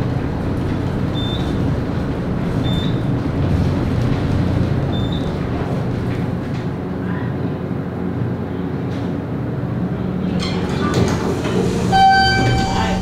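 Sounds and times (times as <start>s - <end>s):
elevator clicks and rattles: 0.0s - 7.1s, 10.2s - 13.0s
elevator car rumble and hum: 0.0s - 13.0s.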